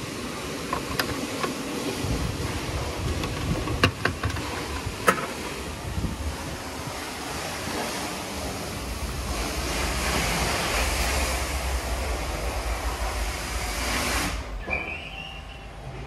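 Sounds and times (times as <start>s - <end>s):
water spray hissing onto car: 0.0s - 14.6s.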